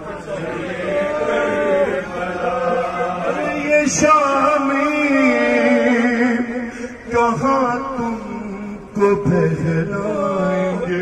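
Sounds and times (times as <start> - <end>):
man chanting into a microphone: 2.8 - 11.0.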